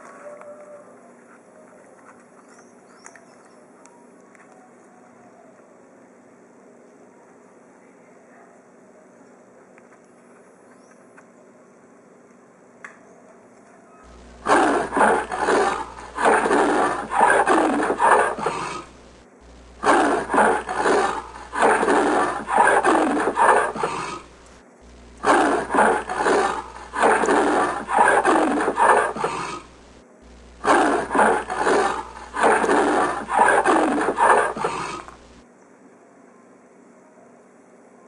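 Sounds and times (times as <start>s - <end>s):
leopard roaring: 14.1s - 29.8s, 30.6s - 35.4s.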